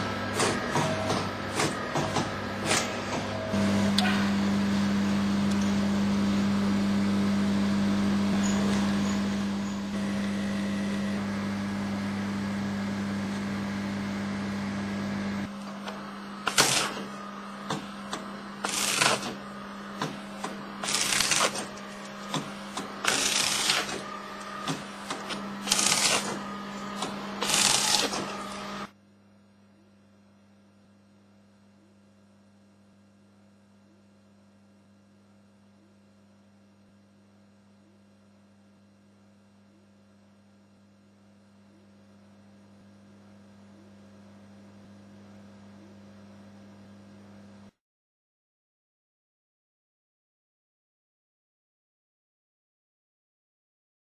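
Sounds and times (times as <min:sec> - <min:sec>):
motor hum: 0:00.0 - 0:29.4
guillotine cutting strokes: 0:20.0 - 0:28.9.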